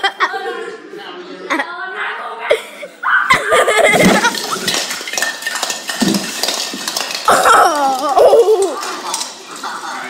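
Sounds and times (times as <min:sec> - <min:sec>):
hard objects clattering: 0:03.4 - 0:10.0.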